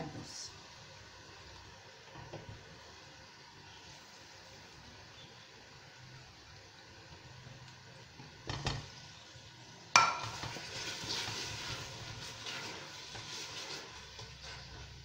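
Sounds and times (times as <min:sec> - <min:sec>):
food sizzling in a pot: 0:00.0 - 0:15.0
utensil striking steel pot: 0:09.9 - 0:10.6.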